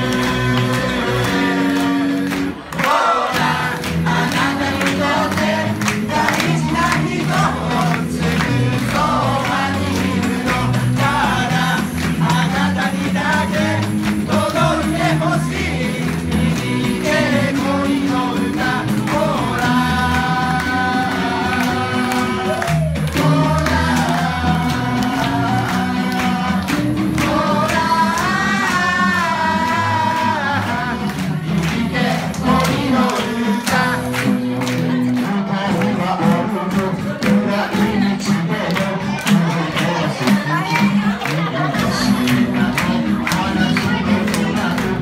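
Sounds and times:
low bass line: 0.0s - 2.7s, 3.3s - 40.1s
girls singing in harmony: 0.0s - 34.2s
hands clapping: 0.0s - 45.0s.

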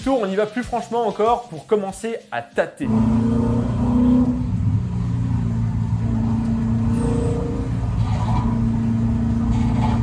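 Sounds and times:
car engine running hard: 2.9s - 10.0s.

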